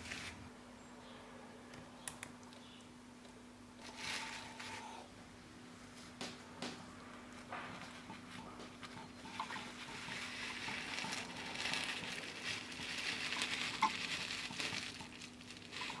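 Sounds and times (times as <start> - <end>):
faint steady hum: 0.0 - 16.0
magnetic balls clicking and rattling: 8.0 - 16.0.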